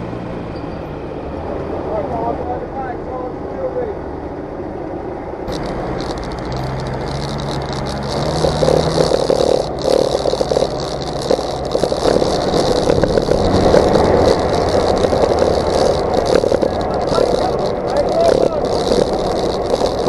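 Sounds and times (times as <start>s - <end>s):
tyres crunching on gravel: 5.5s - 20.0s
vehicle body rattling: 5.5s - 20.0s
vehicle engine accelerating: 5.5s - 20.0s.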